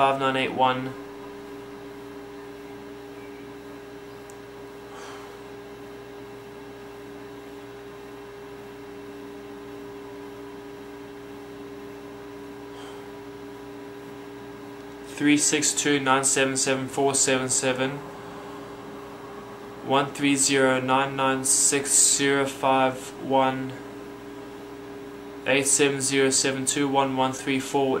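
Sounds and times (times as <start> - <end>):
electrical hum: 0.0 - 28.0.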